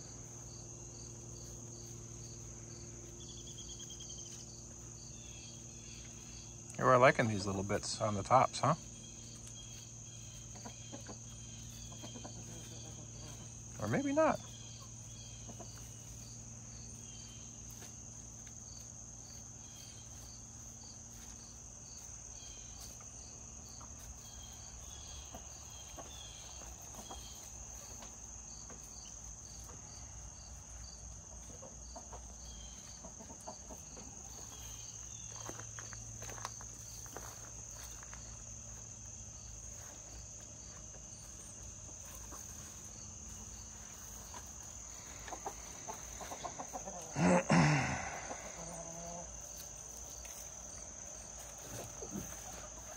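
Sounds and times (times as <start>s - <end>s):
crickets chirping: 0.0s - 52.9s
chickens clucking softly: 9.2s - 16.4s, 23.7s - 30.0s, 30.8s - 34.8s, 40.9s - 50.4s, 51.4s - 52.9s.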